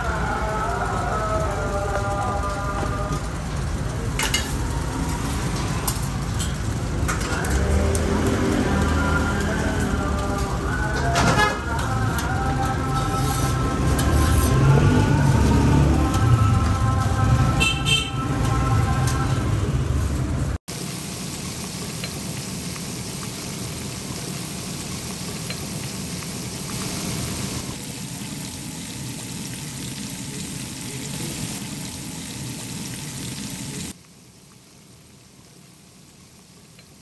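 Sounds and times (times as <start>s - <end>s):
oil sizzling while deep-frying: 0.0s - 37.0s
music: 8.7s - 19.5s.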